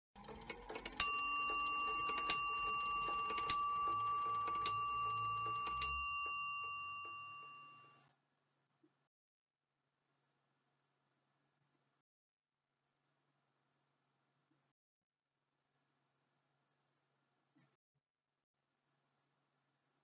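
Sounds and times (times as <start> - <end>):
clock bell striking: 0.3 - 7.9.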